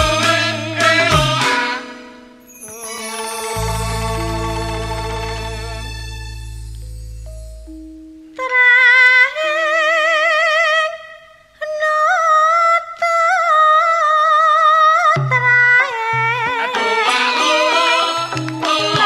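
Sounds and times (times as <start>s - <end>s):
low bass notes: 0.0s - 1.5s, 3.6s - 8.4s
high voice singing with vibrato: 0.0s - 6.0s, 8.4s - 19.0s
low drone: 3.3s - 8.4s.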